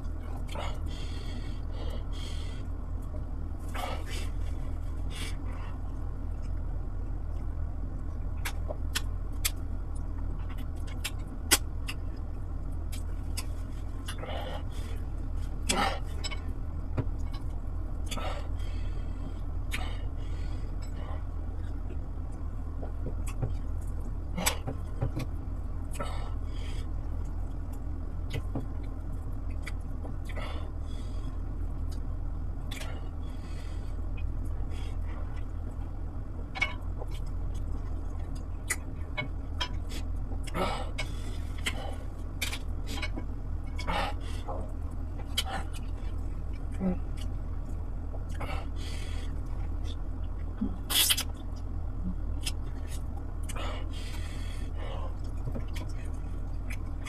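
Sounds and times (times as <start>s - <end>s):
steady low hum: 0.0s - 57.0s
person chewing: 8.2s - 18.2s, 19.5s - 26.1s, 34.1s - 54.3s.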